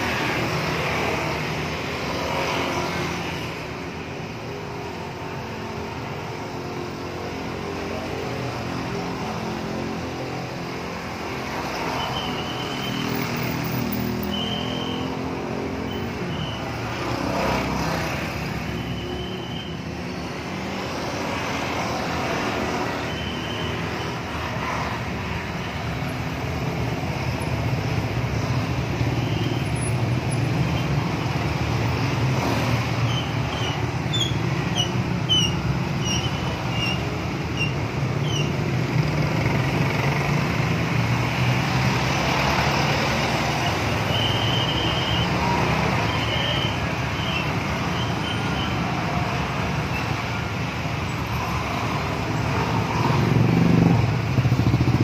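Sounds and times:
road traffic engine and tyre noise: 0:00.0 - 0:55.0.

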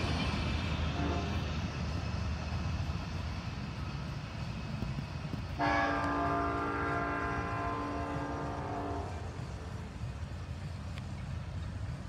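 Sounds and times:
train horn blast: 0:00.9 - 0:01.5, 0:05.6 - 0:09.4.

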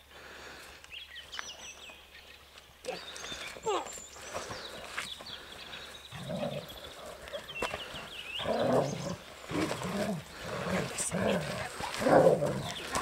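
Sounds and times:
dog growling in play: 0:06.1 - 0:07.5, 0:08.4 - 0:13.0.

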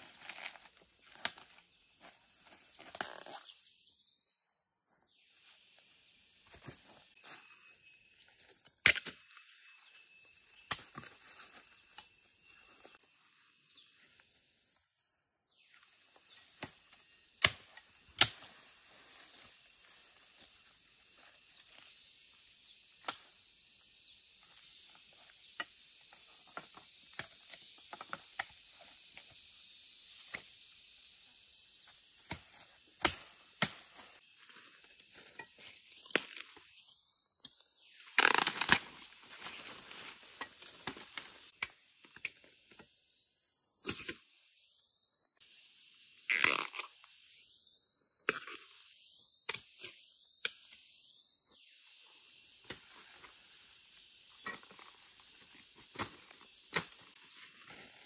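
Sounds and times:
sharp snaps and knocks: 0:37.4 - 0:39.5.

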